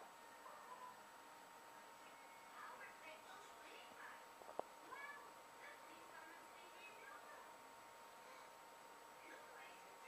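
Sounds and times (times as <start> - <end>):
faint steady high tone: 0.2 - 1.1, 2.0 - 3.0.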